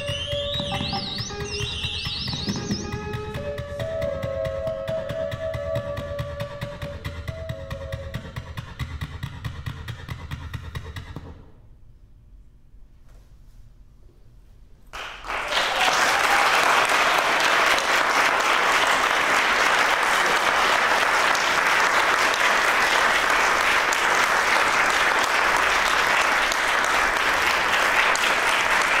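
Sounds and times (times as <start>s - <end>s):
audience applauding: 14.9s - 29.0s.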